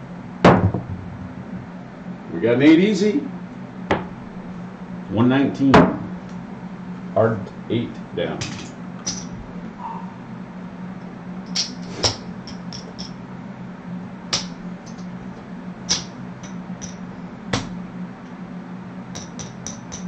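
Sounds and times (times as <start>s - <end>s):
steady low hum: 0.0s - 20.0s
casino chips clacking: 12.5s - 13.2s.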